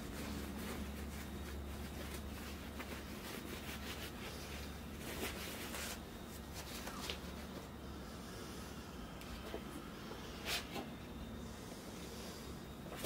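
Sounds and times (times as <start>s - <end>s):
paper towel rustling: 0.0s - 7.7s
steady low hum: 0.0s - 13.0s.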